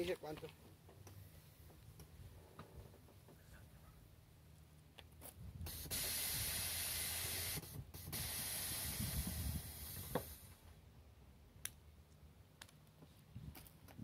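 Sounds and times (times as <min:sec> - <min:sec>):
air suspension hissing: 0:05.6 - 0:10.6.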